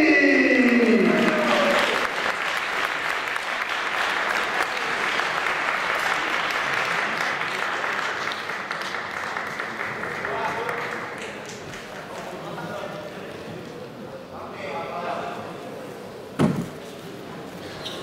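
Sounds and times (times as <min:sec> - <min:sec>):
man announcing: 0:00.0 - 0:01.9
audience applause: 0:00.7 - 0:12.6.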